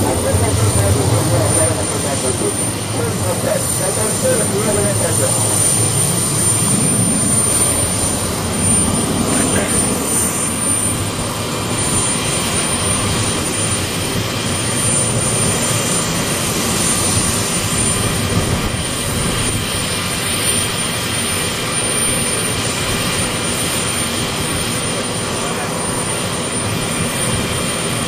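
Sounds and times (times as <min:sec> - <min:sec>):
jet engines rushing: 0:00.0 - 0:28.0.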